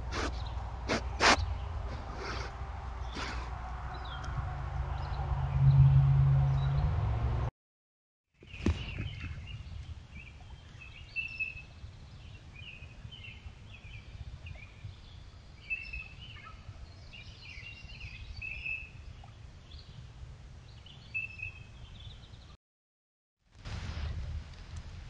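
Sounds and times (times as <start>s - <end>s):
birds chirping: 0.0s - 6.9s, 8.4s - 20.0s
low microphone rumble: 0.0s - 7.5s.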